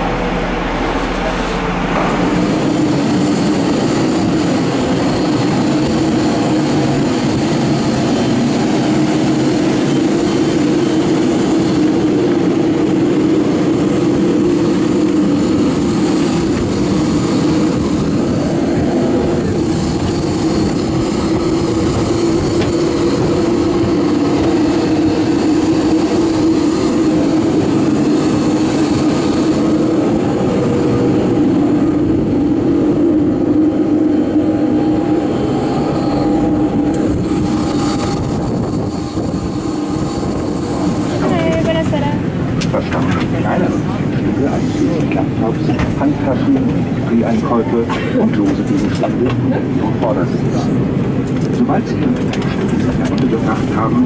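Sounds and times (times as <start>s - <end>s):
jet turbine drone with high whine: 0.0s - 54.0s.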